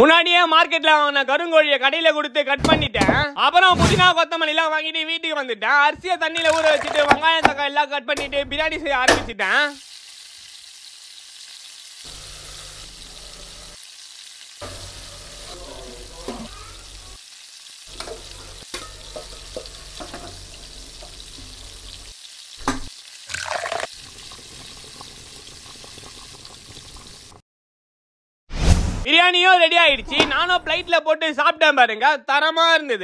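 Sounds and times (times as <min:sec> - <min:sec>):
food sizzling in oil: 0:09.4 - 0:27.4.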